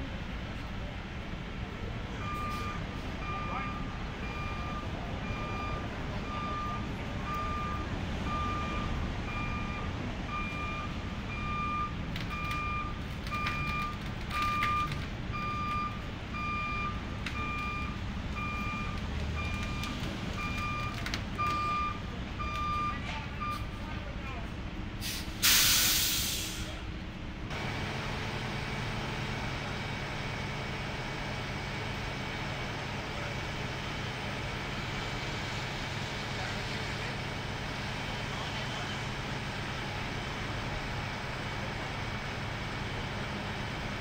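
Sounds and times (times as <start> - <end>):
truck engine rumble: 0.0 - 44.0
truck backup alarm beeping: 2.2 - 23.8.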